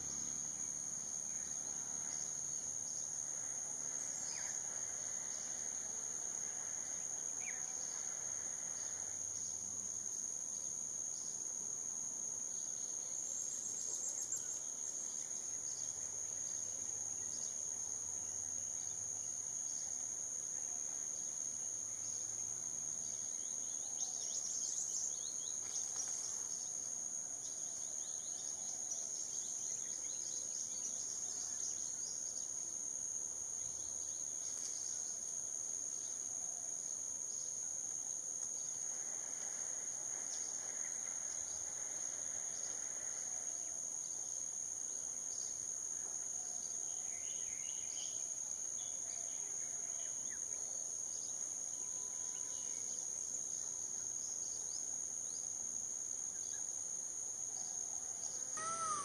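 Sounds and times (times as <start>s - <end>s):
faint bird chirps: 58.6s - 59.0s
high-pitched insect drone: 58.6s - 59.0s.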